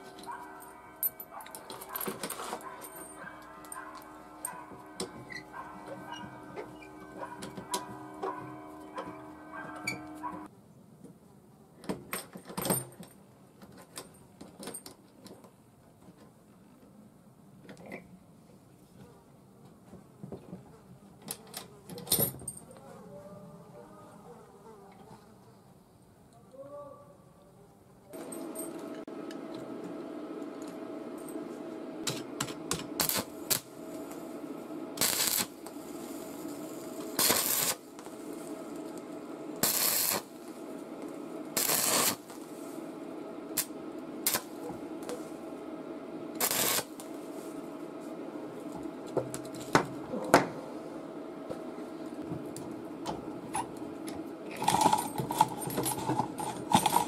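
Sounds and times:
steady low hum: 0.0 - 10.5, 28.1 - 57.0
welding arc crackling: 32.0 - 45.4, 46.3 - 47.5.

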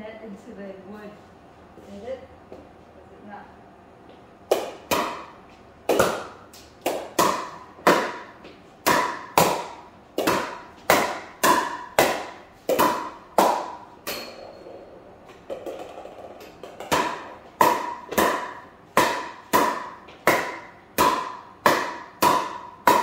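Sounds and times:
paddle striking ball: 4.5 - 5.3, 5.9 - 14.3, 15.4 - 23.0
ball bouncing on wooden floor: 5.9 - 23.0.

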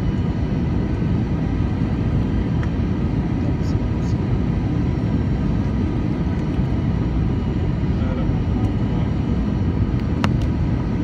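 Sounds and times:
faint steady whine: 0.0 - 11.0
jet engine and airflow rumble: 0.0 - 11.0.

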